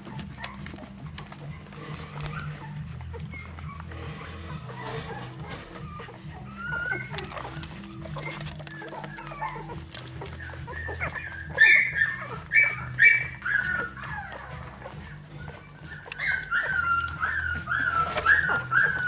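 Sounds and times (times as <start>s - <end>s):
puppies whimpering and squealing: 0.0s - 19.0s.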